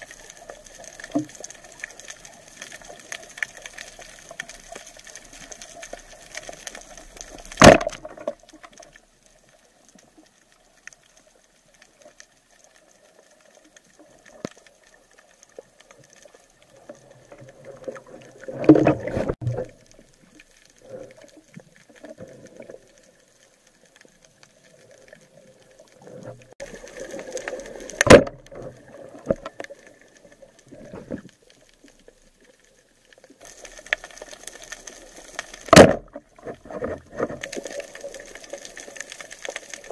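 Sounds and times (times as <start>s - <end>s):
sharp underwater knocks: 7.6s - 8.2s, 28.0s - 28.5s, 35.7s - 36.2s
clattering rumble underwater: 16.9s - 20.2s, 26.1s - 29.8s.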